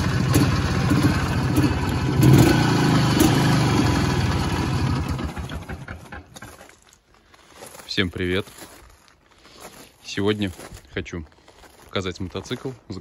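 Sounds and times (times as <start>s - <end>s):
motorcycle engine idling: 0.0s - 6.6s.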